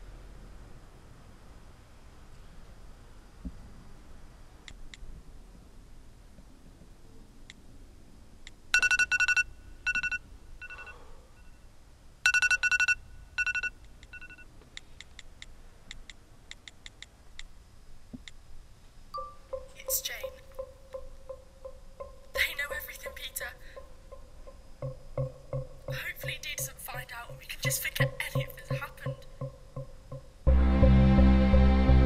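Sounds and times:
smartphone beeps: 0:08.8 - 0:11.6, 0:12.3 - 0:14.5
fingers tapping screen: 0:19.2 - 0:30.2.

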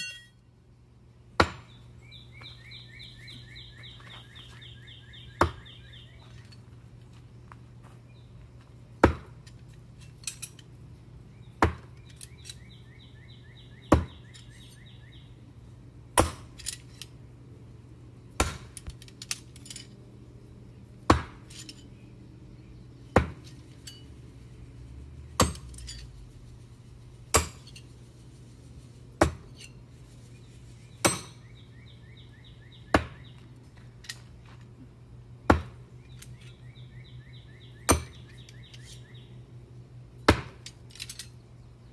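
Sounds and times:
knives clinking together: 0:40.6 - 0:41.4.

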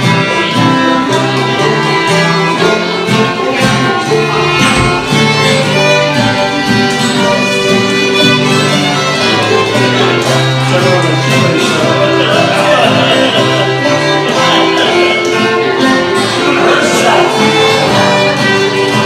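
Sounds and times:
banjo: 0:00.0 - 0:19.0
fiddles playing melody: 0:00.0 - 0:19.0
guitar accompaniment: 0:00.0 - 0:19.0.

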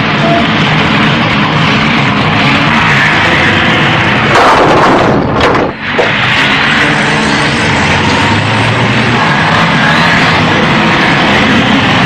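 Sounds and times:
steady noise: 0:00.0 - 0:12.0
vehicle crash impact: 0:04.2 - 0:06.3
sharp crack: 0:04.2 - 0:06.4.

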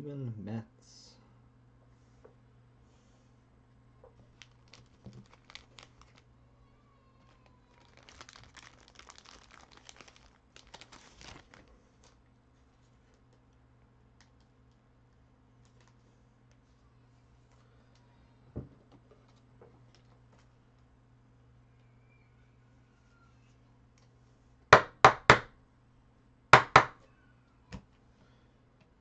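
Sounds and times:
low steady hum: 0:00.0 - 0:29.0
plastic packaging crinkling and tearing: 0:04.3 - 0:06.3, 0:07.2 - 0:12.2.

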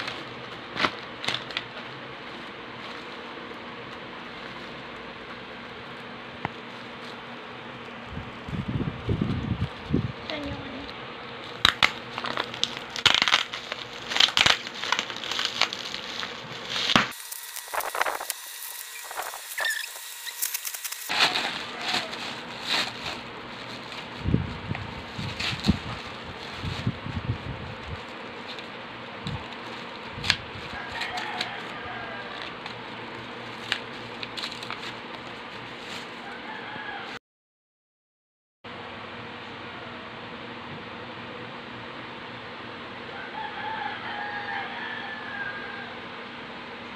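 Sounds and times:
bubble wrap crinkling and cracking: 0:00.0 - 0:10.8, 0:11.4 - 0:36.3
cardboard box being opened: 0:19.0 - 0:24.1.

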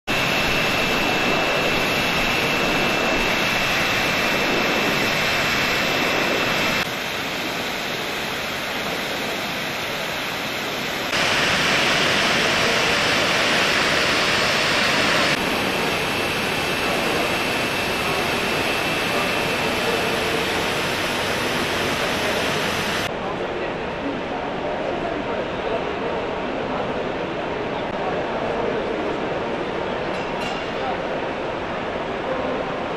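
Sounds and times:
machinery rushing noise: 0:00.1 - 0:23.1.

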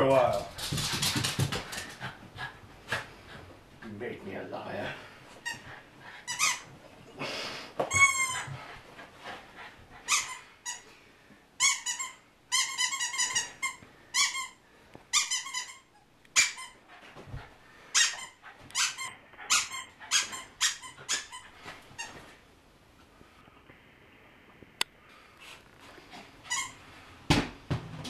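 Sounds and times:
squeaky dog toy squeaking: 0:06.3 - 0:06.7, 0:07.9 - 0:08.5, 0:10.1 - 0:10.8, 0:11.6 - 0:16.8, 0:18.0 - 0:22.2, 0:26.4 - 0:26.8.

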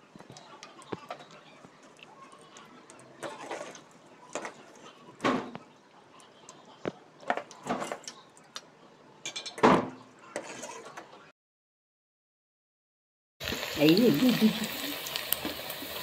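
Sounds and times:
metal ladle clanking on a pan: 0:09.2 - 0:09.6.

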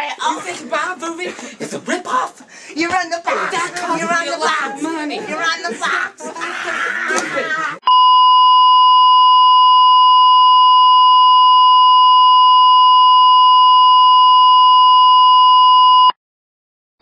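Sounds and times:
steady test tone beep: 0:07.8 - 0:16.1.

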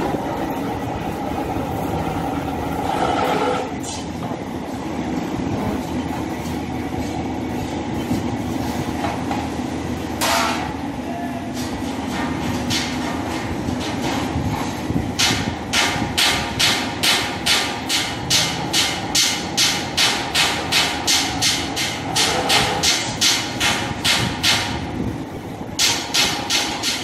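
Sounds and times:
sheet metal shear clacking strokes: 0:00.0 - 0:04.1, 0:11.7 - 0:24.8, 0:25.8 - 0:27.0
machine running steadily: 0:00.0 - 0:27.0.

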